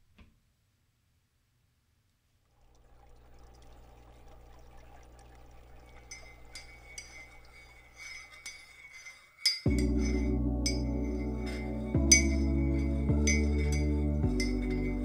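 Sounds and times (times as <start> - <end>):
aquarium water trickling and bubbling: 2.4 - 15.0
light clinks: 5.7 - 15.0
low hum: 9.7 - 15.0.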